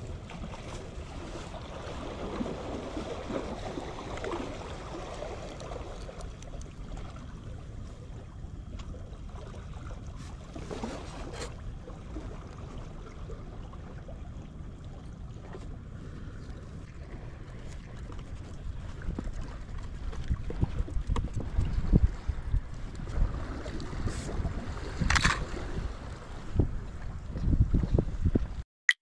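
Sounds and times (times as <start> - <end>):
wind on microphone: 16.0 - 28.6.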